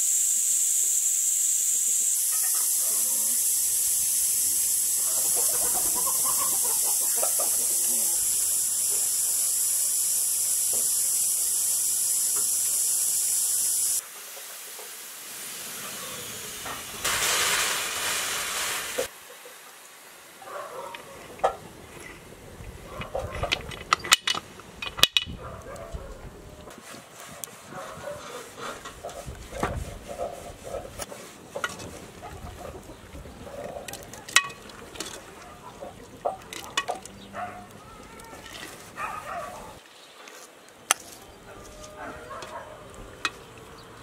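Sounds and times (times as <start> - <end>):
steam hissing from pressure pot: 0.0 - 19.2.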